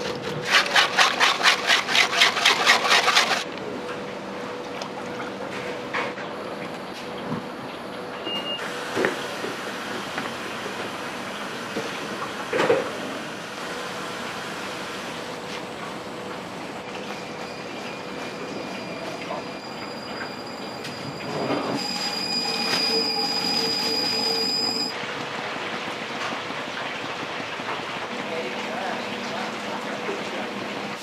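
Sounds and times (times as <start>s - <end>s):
mechanical hum and hiss: 3.4s - 31.0s.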